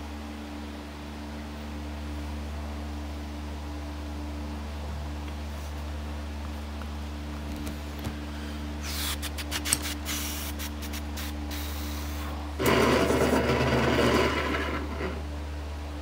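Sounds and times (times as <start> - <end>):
rubbing or scraping: 12.6 - 15.3.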